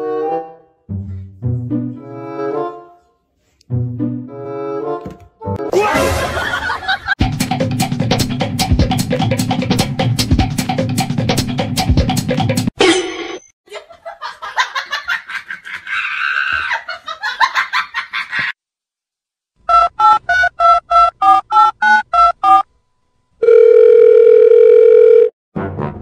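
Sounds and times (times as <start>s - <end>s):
busy music-like sound: 0.0s - 12.7s
steady telephone tone: 23.4s - 25.4s.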